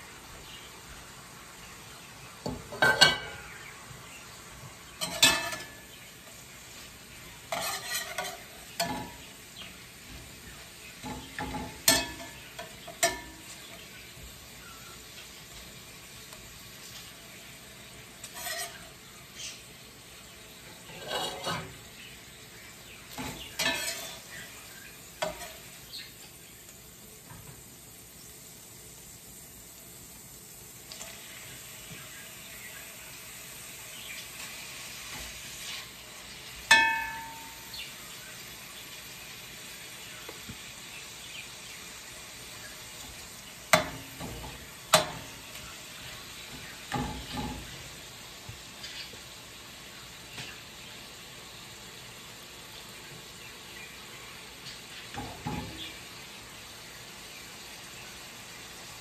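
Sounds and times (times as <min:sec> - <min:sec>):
beef sizzling in a pan: 0:00.0 - 0:59.0
metal spoon clinking on pan: 0:02.7 - 0:03.4, 0:05.0 - 0:05.9, 0:07.5 - 0:09.3, 0:11.0 - 0:13.8, 0:23.1 - 0:24.4, 0:25.2 - 0:25.6, 0:36.7 - 0:37.8, 0:43.7 - 0:45.3.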